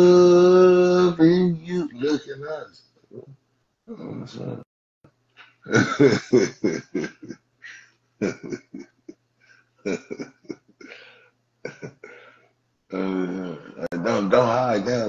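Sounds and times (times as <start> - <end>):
man laughing hard: 5.7 - 8.9, 9.9 - 10.6, 11.7 - 12.1.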